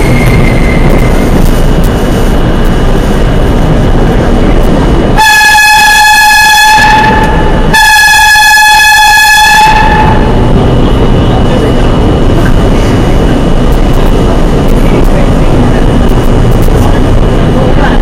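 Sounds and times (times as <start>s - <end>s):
train rumbling in tunnel: 0.0s - 18.0s
subway train horn blasts: 5.2s - 10.4s.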